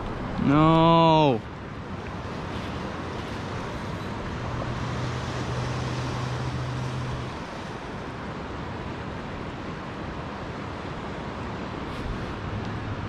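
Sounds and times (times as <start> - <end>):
surf on reef: 0.0 - 13.0.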